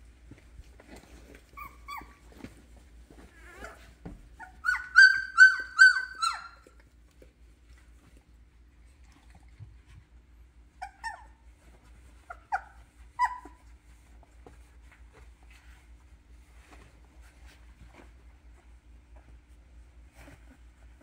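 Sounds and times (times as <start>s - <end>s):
puppies whimpering: 1.5s - 2.3s, 3.3s - 6.8s, 10.8s - 11.4s, 12.2s - 13.7s.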